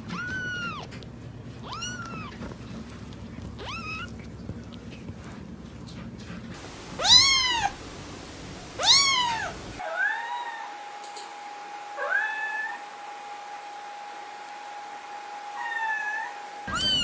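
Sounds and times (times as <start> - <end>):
kitten meowing: 0.0 - 0.9, 1.6 - 2.4, 3.6 - 4.1, 7.0 - 7.8, 8.8 - 10.4, 15.6 - 17.0.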